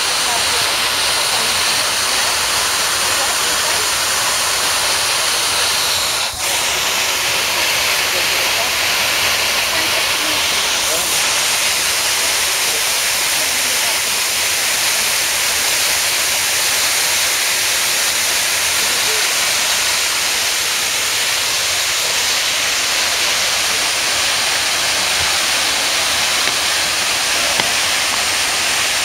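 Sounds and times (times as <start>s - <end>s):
waterfall splashing over rocks: 0.0s - 29.0s.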